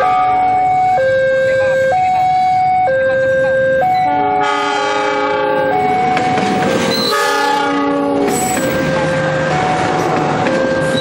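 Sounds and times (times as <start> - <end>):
passing train clatter: 0.0 - 11.0
train rumble: 0.0 - 11.0
two-tone warning alarm: 0.0 - 11.0
locomotive horn chords: 3.9 - 6.0, 7.0 - 8.4.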